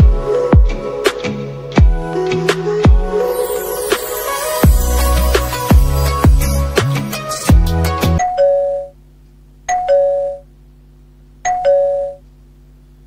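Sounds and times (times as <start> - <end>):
electronic music with bass beat: 0.0 - 8.2.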